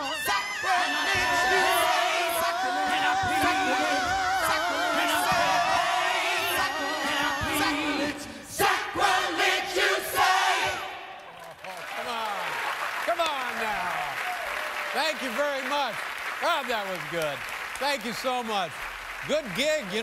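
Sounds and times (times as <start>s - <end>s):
band playing: 0.0s - 10.6s
gospel choir singing: 0.0s - 11.4s.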